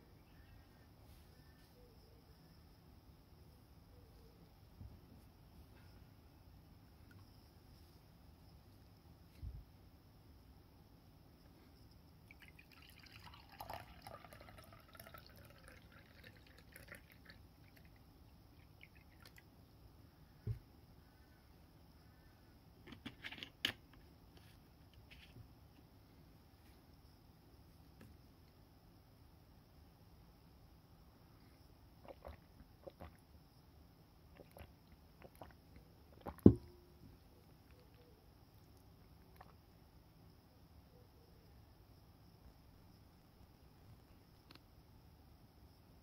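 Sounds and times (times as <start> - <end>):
drink pouring into a glass: 12.3 - 18.0
liquid dripping: 12.3 - 19.5.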